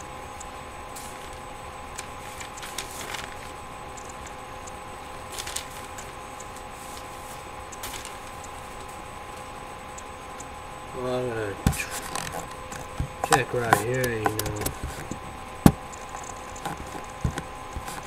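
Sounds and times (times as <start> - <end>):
faint hum: 0.0 - 18.0
soft clicks and rustles: 2.0 - 4.4, 5.3 - 9.5.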